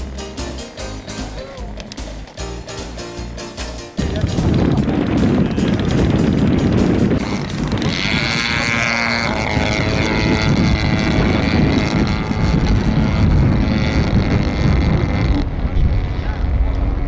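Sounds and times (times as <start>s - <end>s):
model airplane engine buzzing: 4.0s - 17.0s.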